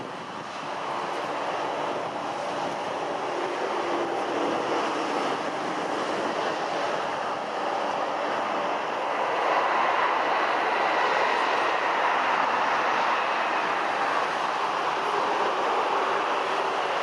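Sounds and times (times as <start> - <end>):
jet engines roaring: 0.0 - 17.0.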